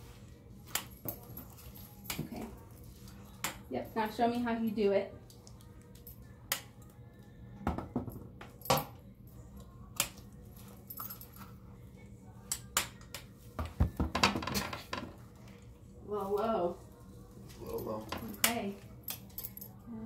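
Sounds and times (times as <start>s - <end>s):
belt buckle clinking: 17.7s - 19.8s.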